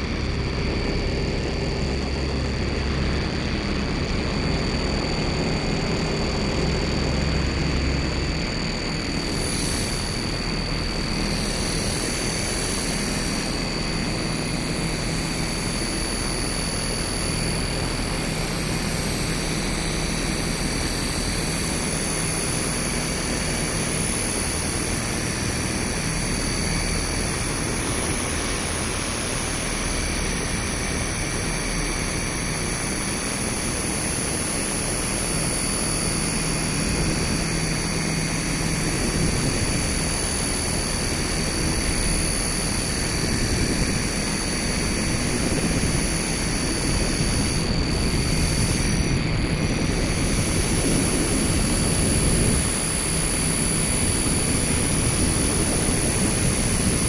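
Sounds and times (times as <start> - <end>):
electronic noise drone: 0.0 - 57.0.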